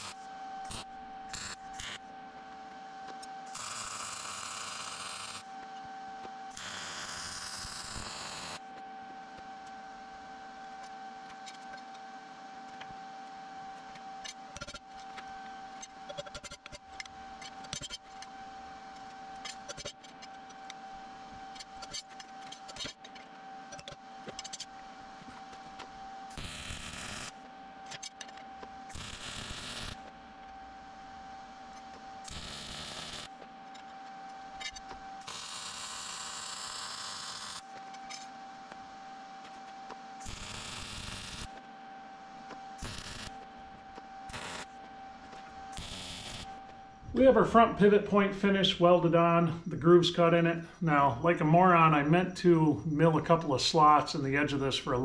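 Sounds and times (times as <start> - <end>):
crackling hissing welding arc: 0.0 - 2.0, 3.5 - 5.4, 6.5 - 8.6, 26.3 - 27.4, 28.9 - 30.1, 32.2 - 33.3, 34.6 - 38.2, 40.2 - 41.5, 42.8 - 43.4, 44.3 - 44.7, 45.7 - 46.7
steady high whine: 0.0 - 55.0.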